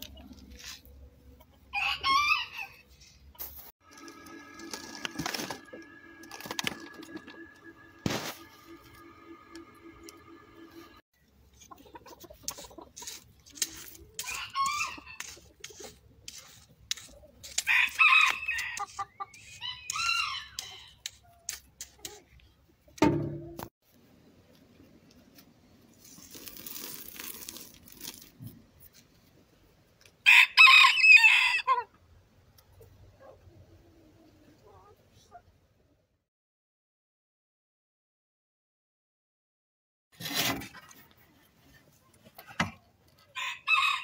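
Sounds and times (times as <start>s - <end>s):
chickens calling: 14.0s - 15.9s
rooster crowing: 30.3s - 31.8s, 43.4s - 44.0s.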